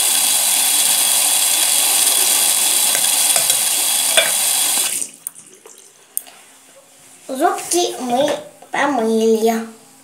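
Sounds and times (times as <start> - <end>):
water running from a tap: 0.0 - 6.0.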